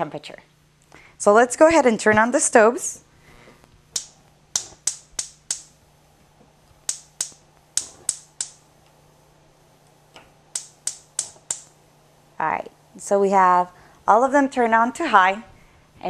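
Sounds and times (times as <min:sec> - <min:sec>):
gas spark igniter clicking: 0:03.9 - 0:05.7, 0:06.7 - 0:09.0, 0:09.8 - 0:11.7.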